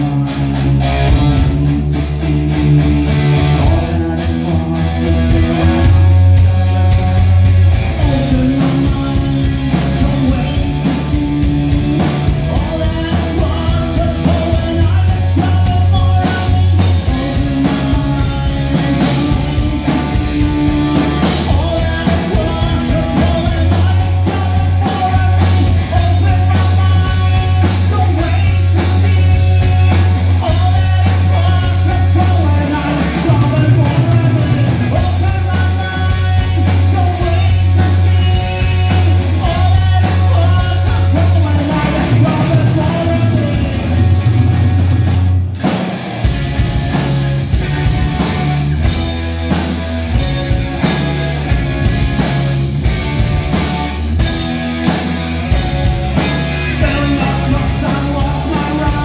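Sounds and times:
person singing into microphone: 0:00.0 - 0:44.0, 0:56.7 - 0:59.0
bass guitar riff: 0:00.0 - 0:59.0
drum kit: 0:00.0 - 0:59.0
electric guitar: 0:00.0 - 0:59.0.

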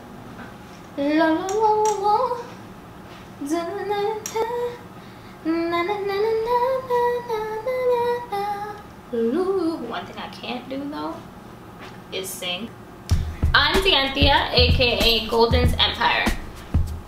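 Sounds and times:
woman singing unaccompanied: 0:01.0 - 0:02.6, 0:03.4 - 0:11.2, 0:13.5 - 0:16.5.

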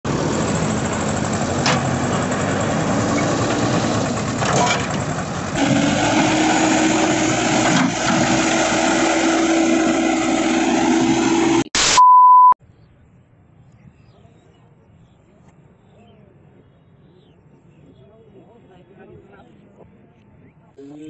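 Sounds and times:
diesel engine running: 0:00.0 - 0:11.7.

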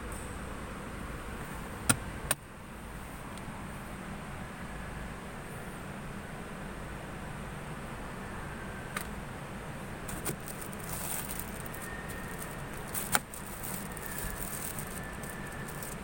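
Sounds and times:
plastic rustling: 0:10.1 - 0:16.0.

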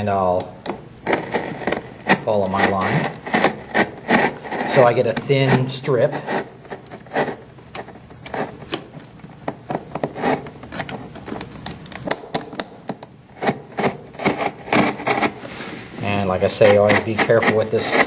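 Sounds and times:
utility knife cutting cardboard: 0:01.1 - 0:07.4, 0:09.7 - 0:10.9, 0:13.4 - 0:15.6, 0:16.5 - 0:18.0.

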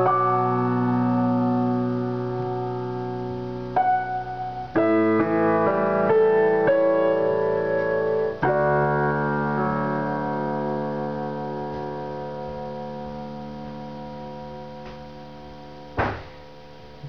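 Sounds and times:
piano chord ringing: 0:00.0 - 0:17.0
short knock: 0:16.0 - 0:16.4.

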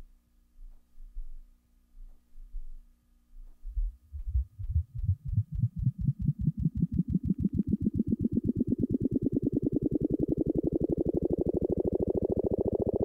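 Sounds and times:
regular rising pulsing: 0:03.7 - 0:13.0.

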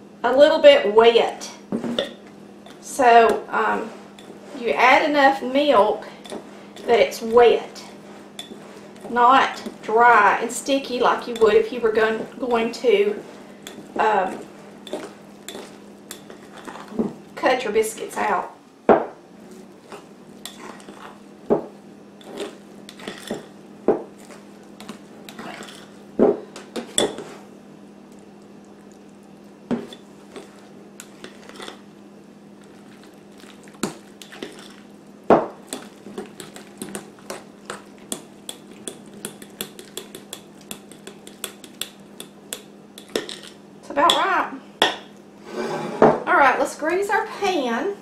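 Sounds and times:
fork scraping a glass bowl: 0:13.6 - 0:17.0, 0:19.9 - 0:21.2, 0:22.2 - 0:23.5, 0:24.2 - 0:26.0, 0:29.8 - 0:31.8.

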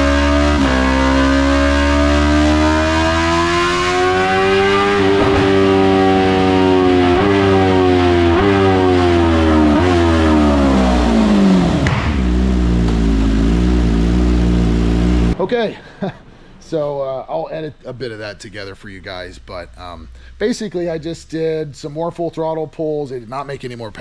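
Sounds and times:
motorcycle engine revving: 0:00.0 - 0:15.4.

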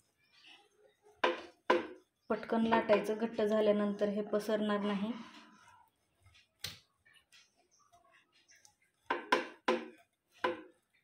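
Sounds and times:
rolling pin knocking on wood: 0:01.2 - 0:02.0, 0:09.1 - 0:10.8.

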